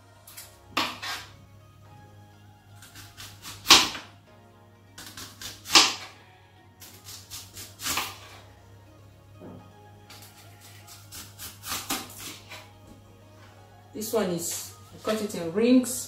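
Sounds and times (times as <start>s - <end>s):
quiet background music: 0.0s - 16.0s
knife chopping on wooden board: 3.2s - 4.0s, 5.0s - 6.1s.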